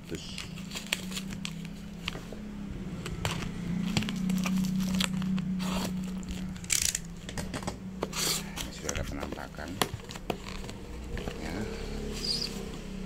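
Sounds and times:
steady low hum: 0.0 - 13.0
cardboard crinkling and tearing: 0.2 - 2.2, 3.2 - 6.8, 8.1 - 11.5.

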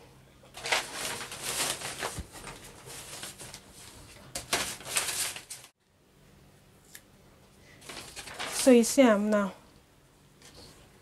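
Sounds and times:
paper rustling: 0.6 - 5.7, 7.8 - 9.0.

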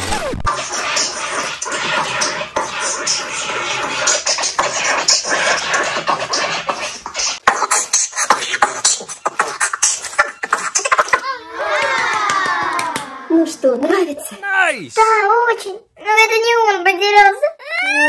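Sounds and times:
record scratching: 0.0 - 11.2
music: 6.0 - 11.2.

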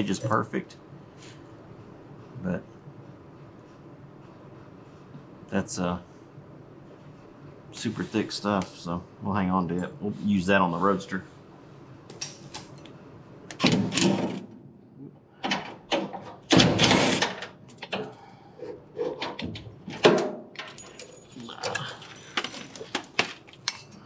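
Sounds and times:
tools and metal parts clinking: 19.0 - 24.0.

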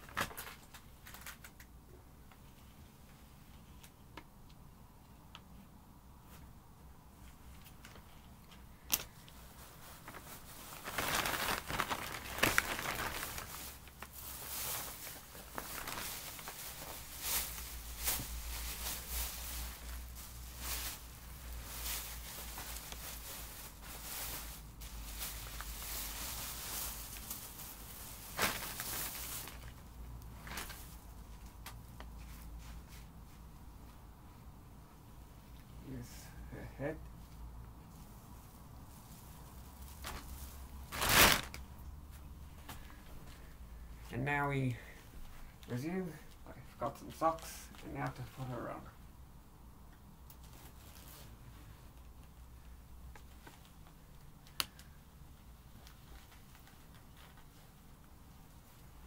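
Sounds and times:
plastic bin bag crinkling: 0.0 - 1.7, 7.6 - 33.0, 37.9 - 41.8.

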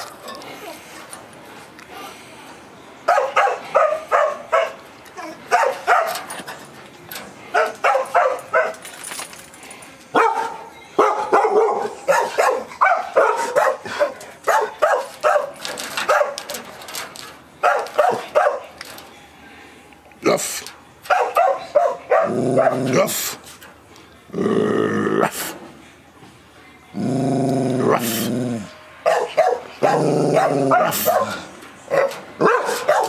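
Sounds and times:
dog barking: 3.1 - 4.8, 5.5 - 6.3, 7.5 - 8.8, 10.2 - 16.4, 17.6 - 18.7, 21.1 - 23.1, 29.0 - 33.0.

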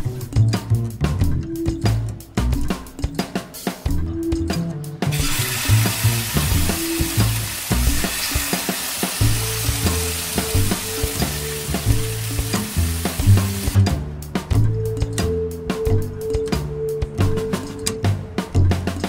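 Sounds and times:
background music with beat: 0.0 - 19.0
chicken sizzling in oil: 5.1 - 13.8.

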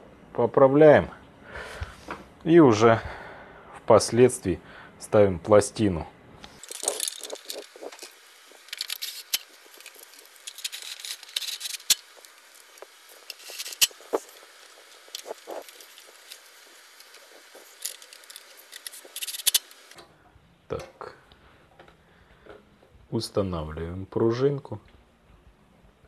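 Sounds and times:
soft scraping and rustling: 6.5 - 20.0.

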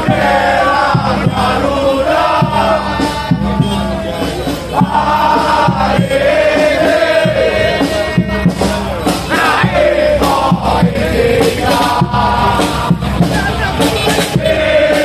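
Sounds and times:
crowd chanting in unison: 0.0 - 15.0
low drum thumps: 4.8 - 15.0.

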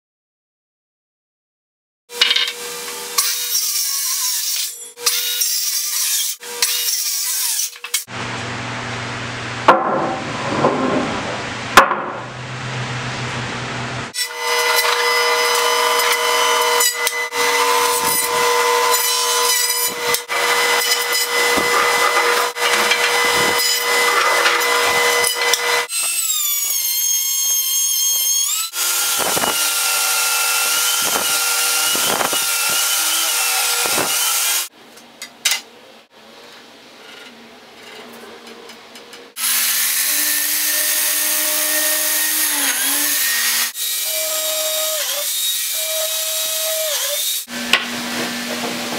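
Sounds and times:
thickness planer feeding boards: 9.7 - 13.4, 14.2 - 26.2, 28.8 - 34.7, 39.7 - 44.0, 47.5 - 48.9
biscuit joiner motor: 14.1 - 34.7, 39.4 - 48.9
jointer cutting wood: 14.1 - 34.7, 39.4 - 48.9.

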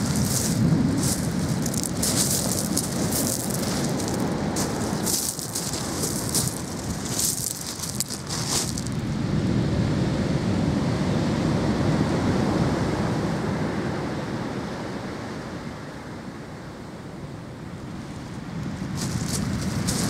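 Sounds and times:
footsteps crunching on gravel: 0.0 - 9.0, 18.8 - 20.0
steady low rushing noise: 0.0 - 9.4.

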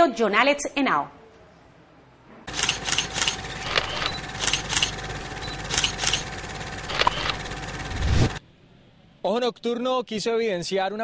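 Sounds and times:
steady electronic tone: 7.8 - 8.4.

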